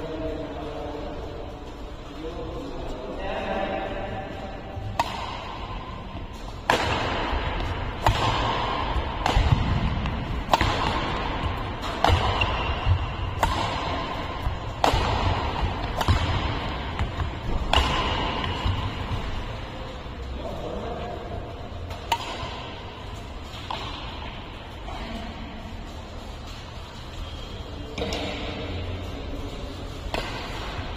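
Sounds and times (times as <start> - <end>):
racket hitting shuttlecock: 4.8 - 19.6, 21.8 - 24.6, 28.0 - 28.8, 30.0 - 30.9.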